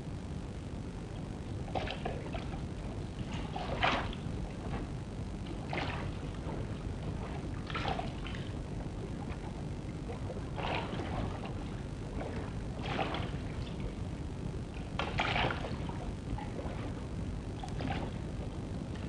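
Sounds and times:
low hiss and hum: 0:00.0 - 0:19.0
oar splashing in water: 0:03.2 - 0:04.9, 0:05.5 - 0:08.6, 0:10.1 - 0:13.8, 0:15.0 - 0:17.0, 0:17.6 - 0:18.3.

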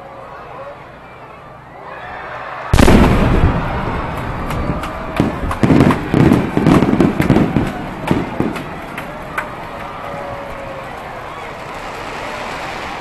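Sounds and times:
firework bursting: 0:02.7 - 0:13.0
sharp firework cracks: 0:02.8 - 0:09.6, 0:11.4 - 0:13.0.

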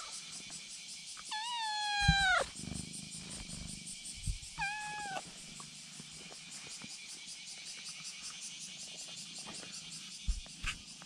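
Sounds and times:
kitten meowing: 0:01.3 - 0:02.5, 0:04.5 - 0:05.2.

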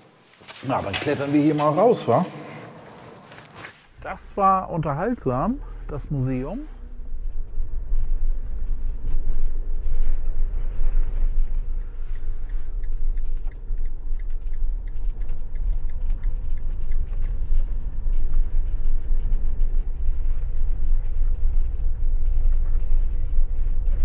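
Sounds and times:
road and engine rumble: 0:03.9 - 0:24.0
faint regular ticking: 0:11.3 - 0:19.7.

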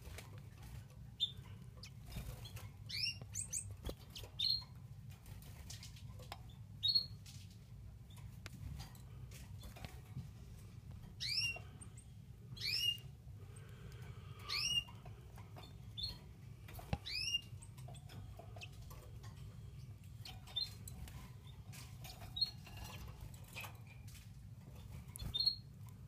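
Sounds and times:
chicks peeping: 0:00.0 - 0:07.4, 0:11.1 - 0:23.6
low steady hum: 0:00.0 - 0:26.0.

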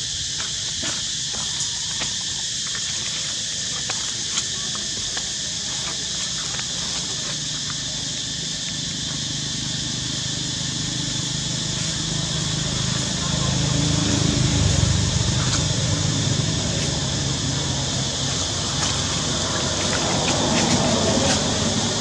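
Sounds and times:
insect chorus: 0:00.0 - 0:22.0
low motor hum: 0:09.8 - 0:22.0.

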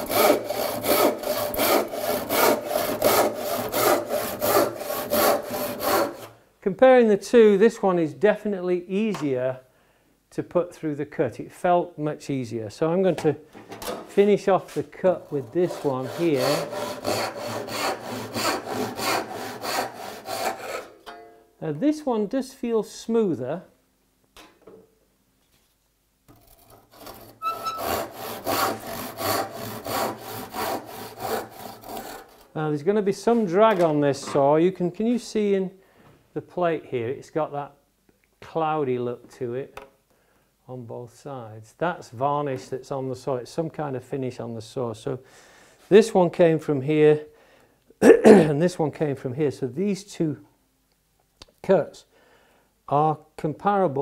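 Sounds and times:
handsaw sawing wood: 0:00.0 - 0:06.4, 0:15.0 - 0:21.0, 0:26.9 - 0:32.5.

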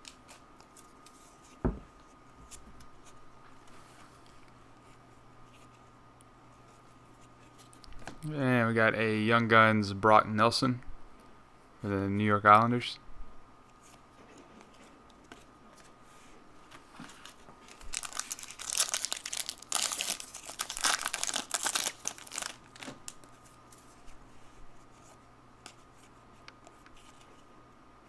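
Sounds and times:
cards rustling: 0:16.6 - 0:24.2
foil wrapper crinkling: 0:17.1 - 0:23.3.

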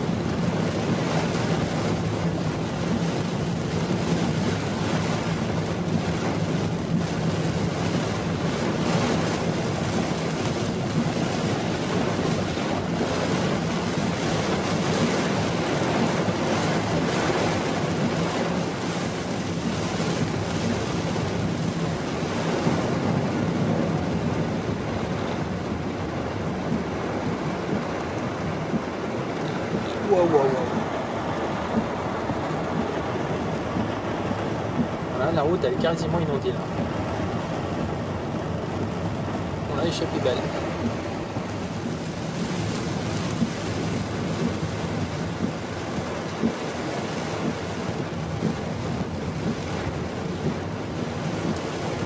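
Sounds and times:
car low hum: 0:00.0 - 0:52.0
heavy rain on car roof: 0:00.0 - 0:52.0.

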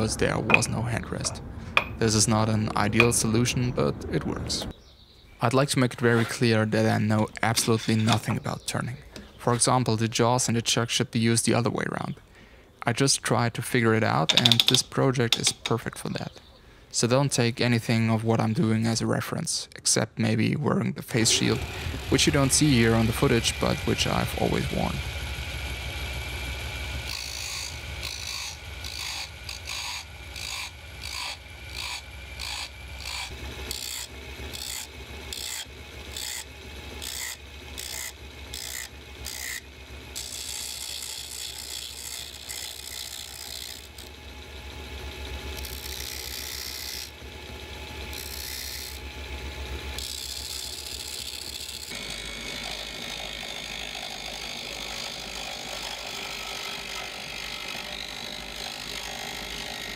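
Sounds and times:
chisel scraping spinning wood: 0:06.0 - 0:08.6, 0:14.3 - 0:15.7, 0:21.2 - 0:59.9
drill motor humming: 0:21.2 - 0:59.9.

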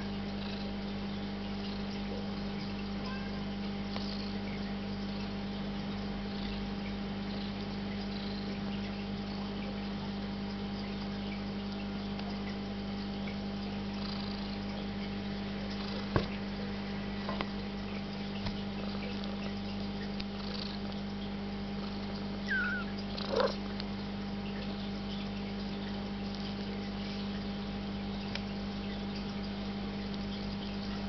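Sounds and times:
cat purring: 0:00.4 - 0:00.8, 0:07.3 - 0:08.5, 0:14.0 - 0:14.6, 0:15.7 - 0:16.3, 0:18.8 - 0:19.5, 0:20.2 - 0:21.0, 0:21.8 - 0:23.8
kitten mews: 0:22.5 - 0:23.6.

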